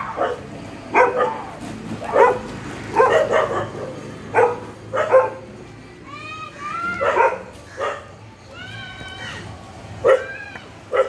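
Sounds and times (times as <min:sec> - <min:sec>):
dog barking: 0:00.1 - 0:05.4, 0:07.0 - 0:08.1, 0:10.0 - 0:10.3.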